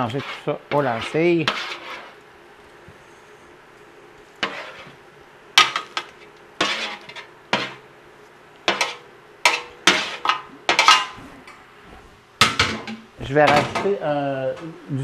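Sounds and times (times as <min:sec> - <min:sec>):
metal spoon scraping metal tray: 0:00.0 - 0:02.2, 0:04.4 - 0:05.0, 0:05.6 - 0:07.8, 0:08.7 - 0:11.2.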